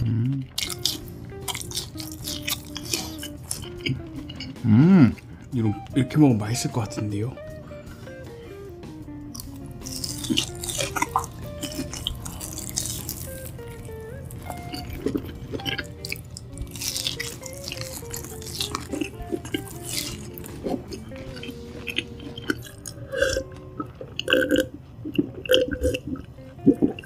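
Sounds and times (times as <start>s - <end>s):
wet chewing and smacking: 0.4s - 5.5s, 9.2s - 27.0s
person gulping a drink: 22.0s - 27.0s.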